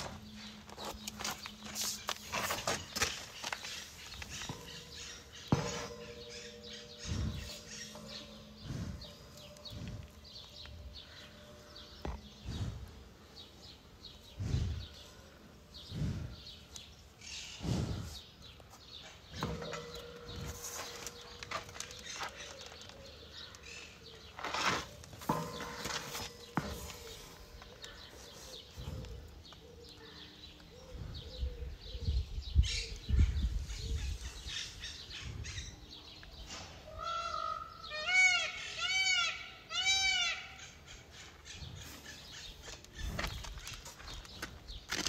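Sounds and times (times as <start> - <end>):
rhinoceros grazing: 0.0 - 31.4
small birds chirping: 0.0 - 39.7, 40.3 - 45.0
low dull breath puffs: 17.5 - 18.3.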